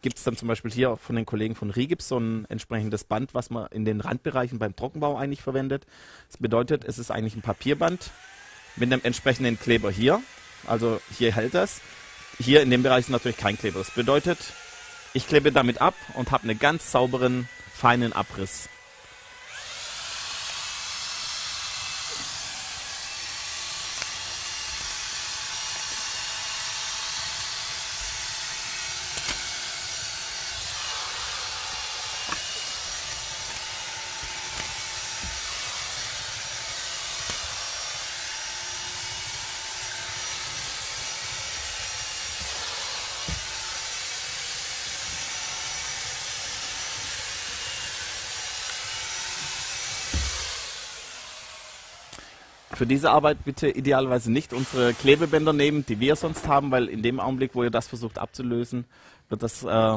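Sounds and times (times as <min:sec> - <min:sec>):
steady hiss: 0:52.7 - 0:56.9.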